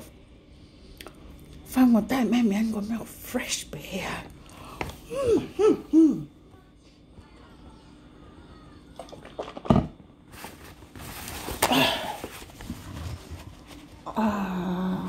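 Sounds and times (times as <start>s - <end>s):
person humming: 5.0s - 6.4s, 14.0s - 15.0s
paper towel rustling: 10.3s - 14.2s.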